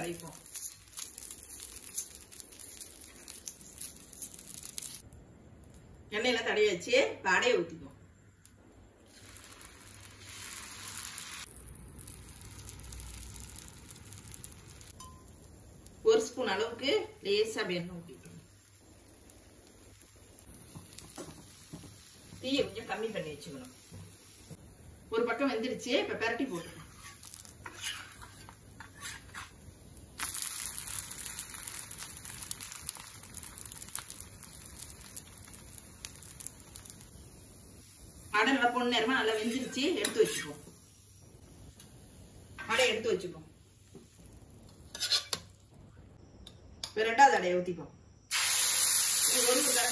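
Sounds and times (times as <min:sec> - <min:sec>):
batter sizzling on a griddle: 0:00.0 - 0:05.4, 0:09.0 - 0:45.7, 0:48.3 - 0:49.9
spatula scraping griddle: 0:26.5 - 0:29.6, 0:44.8 - 0:45.5.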